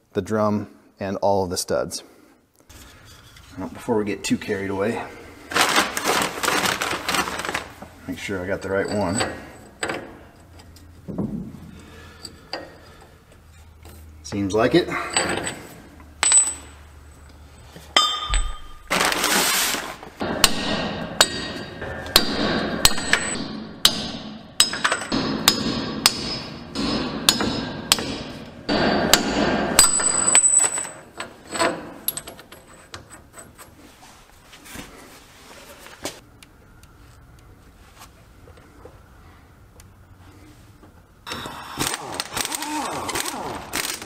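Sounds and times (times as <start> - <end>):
sledgehammer striking metal: 20.2 - 30.4.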